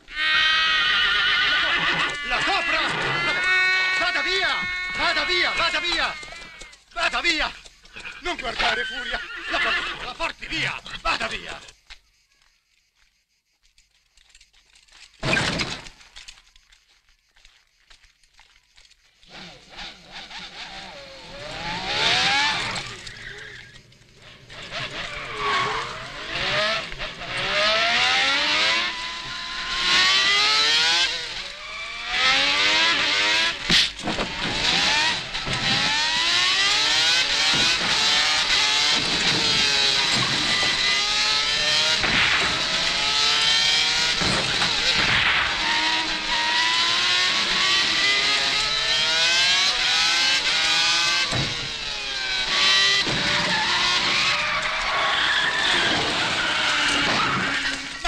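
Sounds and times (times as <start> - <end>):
racing car engines revving: 0.0 - 8.4, 19.2 - 58.0
sharp crack: 33.1 - 36.5, 41.7 - 46.2.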